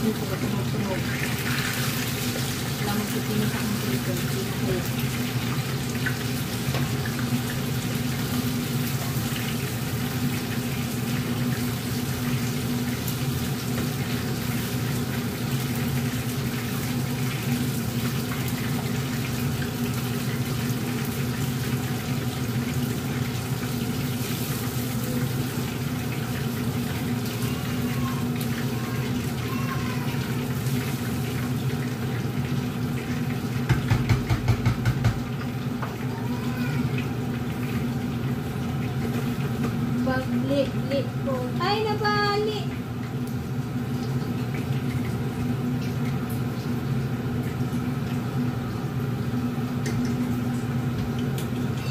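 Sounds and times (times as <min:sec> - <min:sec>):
oil sizzling: 0:00.0 - 0:51.9
clattering taps of strainer: 0:33.6 - 0:36.0.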